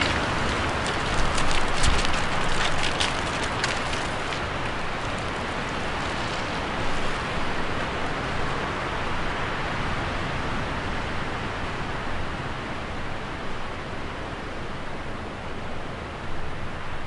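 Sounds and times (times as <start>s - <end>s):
leaves rustling: 0.0s - 8.5s
harsh wind blowing: 0.0s - 17.0s.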